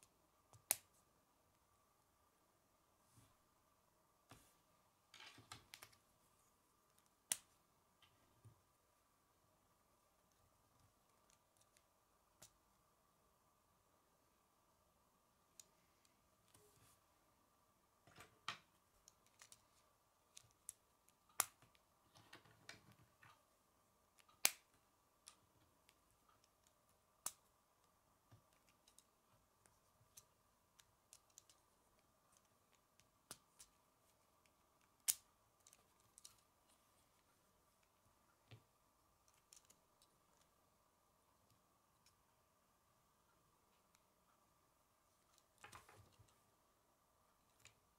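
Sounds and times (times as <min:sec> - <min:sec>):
faint steady hum: 0:00.0 - 0:47.9.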